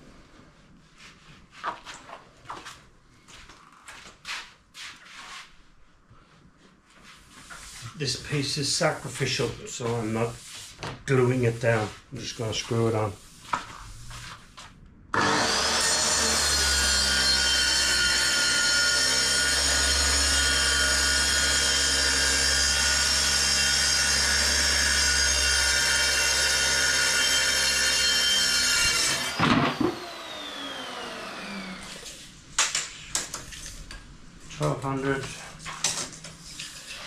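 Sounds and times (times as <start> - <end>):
saw blade winding down: 15.2 - 32.2
circular saw cutting plywood: 15.2 - 32.3.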